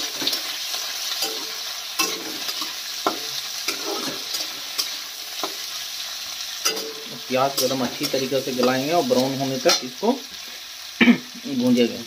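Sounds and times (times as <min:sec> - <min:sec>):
metal spatula scraping pan: 0:00.0 - 0:05.8, 0:06.5 - 0:10.0
onions sizzling in oil: 0:00.0 - 0:12.0.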